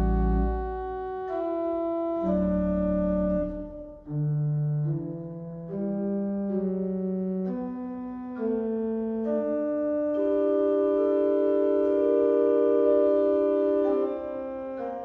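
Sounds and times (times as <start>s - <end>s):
pipe organ playing chords: 0.0s - 15.0s.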